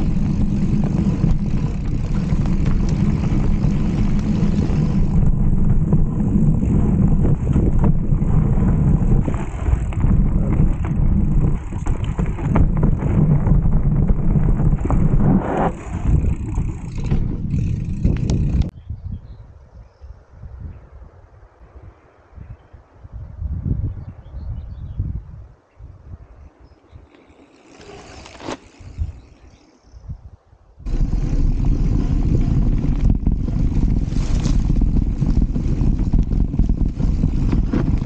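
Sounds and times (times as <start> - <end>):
bike rattling and knocking: 0.0 - 18.7, 30.9 - 38.0
wind rumble on microphone: 0.0 - 27.1, 28.7 - 38.0.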